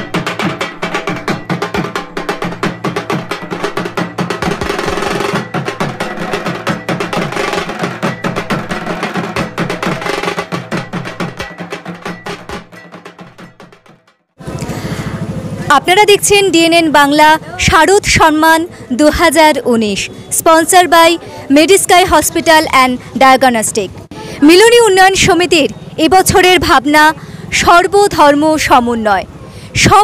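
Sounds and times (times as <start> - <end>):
fast drumming: 0.0 - 18.4.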